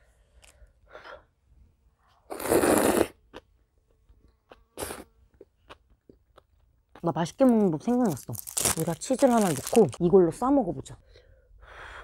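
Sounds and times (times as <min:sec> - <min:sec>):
chewing and lip-smacking: 0:05.3 - 0:07.1.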